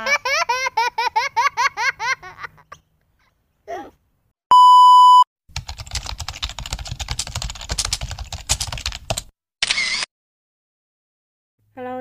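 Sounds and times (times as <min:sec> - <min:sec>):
bleep tone: 0:04.5 - 0:05.3.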